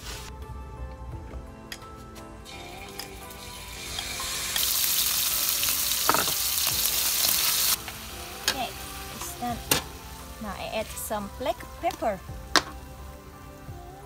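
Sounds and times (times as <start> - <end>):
beef sizzling in hot oil: 2.5 - 13.4.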